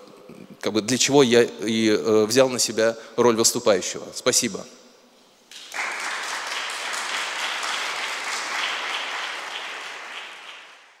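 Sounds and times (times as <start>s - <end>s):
audience applauding: 5.5s - 11.0s.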